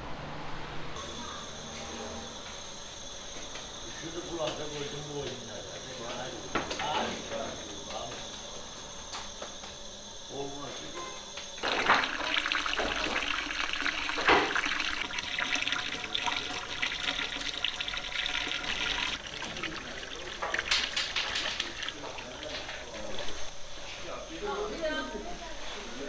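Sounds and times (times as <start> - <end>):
water splashing into metal bowl: 11.6 - 23.5.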